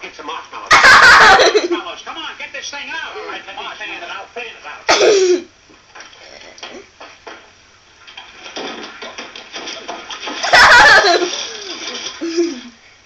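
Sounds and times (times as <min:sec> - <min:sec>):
knocks from film soundtrack: 0:07.0 - 0:07.5, 0:08.1 - 0:10.4.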